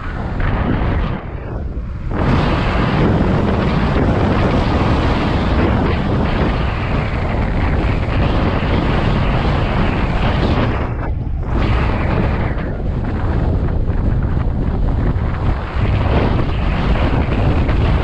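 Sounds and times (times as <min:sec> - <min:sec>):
wind roaring over microphone: 0:00.0 - 0:18.0.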